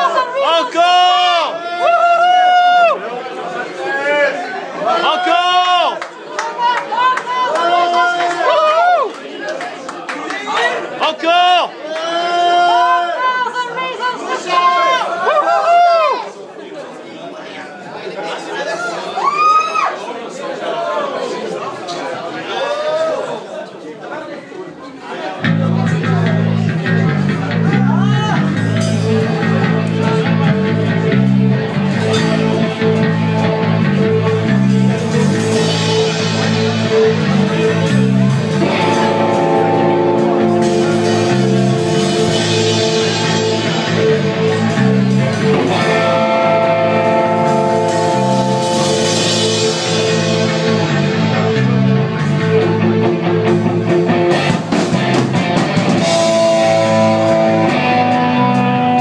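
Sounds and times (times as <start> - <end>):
bass guitar line: 25.4 - 59.0
electric guitar: 25.4 - 59.0
keyboards: 25.5 - 59.0
drums and cymbals: 25.9 - 59.0
keyboard holding tones: 38.5 - 44.4, 45.6 - 51.6.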